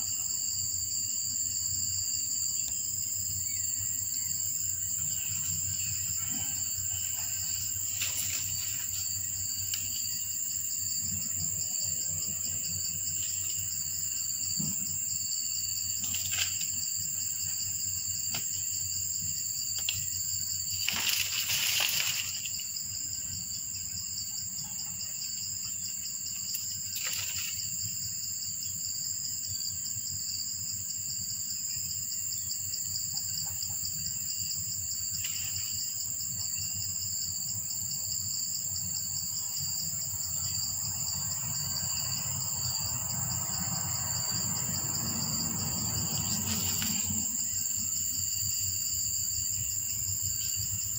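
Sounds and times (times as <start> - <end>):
high-pitched insect chorus: 0.0 - 50.9.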